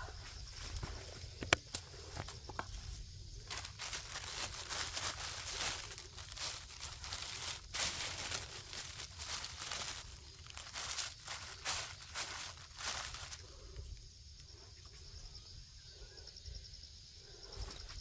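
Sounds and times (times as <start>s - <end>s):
straw and plastic film rustling: 0.5s - 14.0s.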